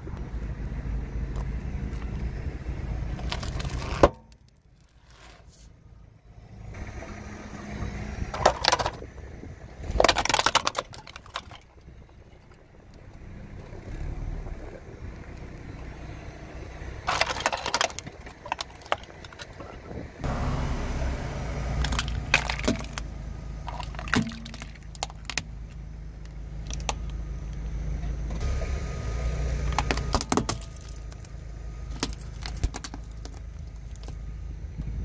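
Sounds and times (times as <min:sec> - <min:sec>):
low car rumble: 0:00.0 - 0:35.0
plastic toys crunching under tyre: 0:03.1 - 0:05.6, 0:08.3 - 0:09.1, 0:09.8 - 0:12.5, 0:17.0 - 0:20.0, 0:21.7 - 0:27.6, 0:29.6 - 0:34.2.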